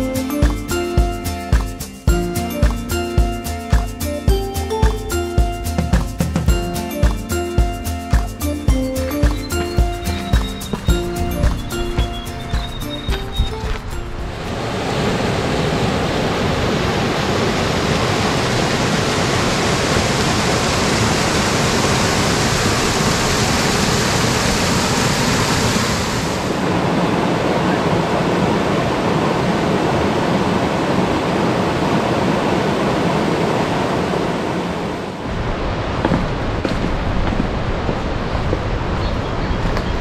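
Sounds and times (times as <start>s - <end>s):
waterfall rushing over rocks: 9.2s - 38.2s.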